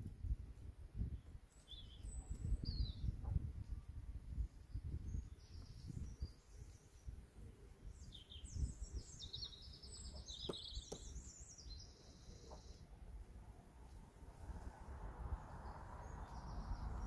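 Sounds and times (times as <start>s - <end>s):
small birds chirping: 1.0s - 17.0s
low microphone rumble: 13.4s - 17.0s.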